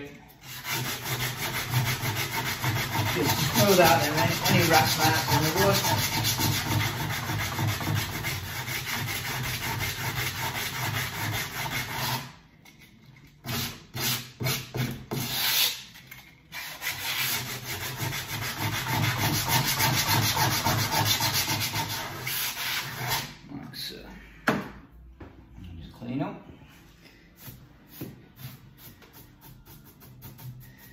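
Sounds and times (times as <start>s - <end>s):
sandpaper scraping on wood: 0.4s - 12.3s, 13.4s - 15.8s, 16.5s - 23.3s.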